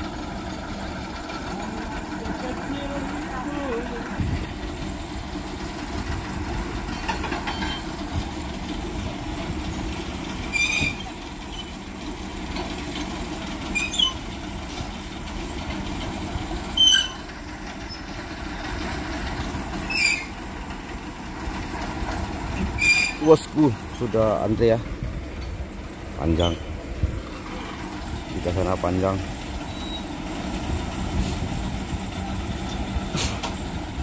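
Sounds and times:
heavy vehicle engines idling: 0.0 - 34.0
short shrill squeals: 10.5 - 11.7, 16.8 - 17.3, 19.9 - 20.4, 22.8 - 23.3.

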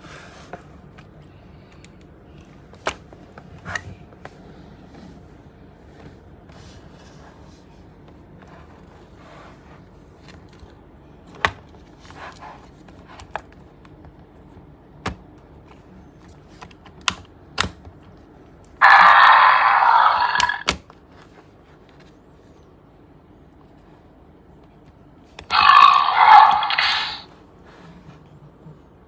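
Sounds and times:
electronic toy roar: 18.8 - 20.8, 25.4 - 27.3.

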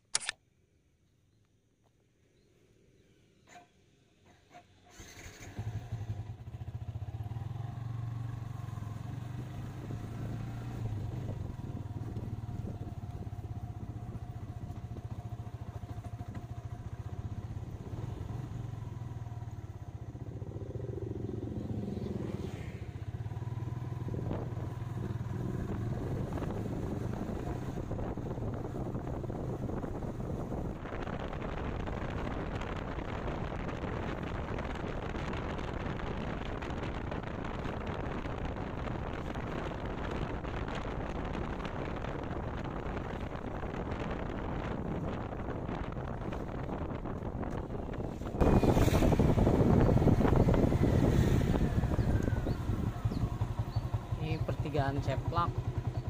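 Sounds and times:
motorcycle engine running: 5.0 - 56.0
wind noise on microphone: 9.2 - 19.0, 21.6 - 56.0.

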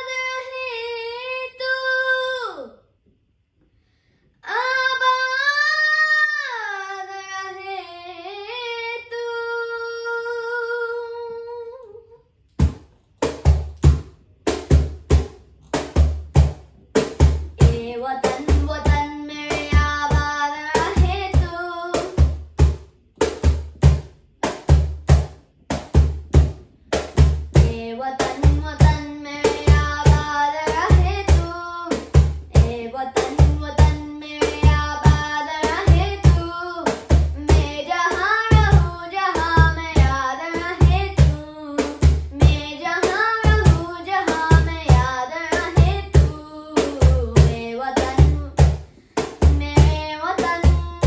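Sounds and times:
cajon beat: 12.6 - 51.0.

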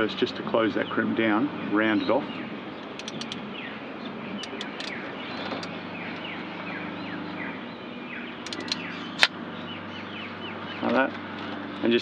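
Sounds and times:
steady low hum: 0.0 - 12.0
bird chirping: 0.6 - 12.0
sharp ratchet release click: 2.9 - 3.4, 8.4 - 9.3
crimping tool ratchet clicks: 8.4 - 8.8.

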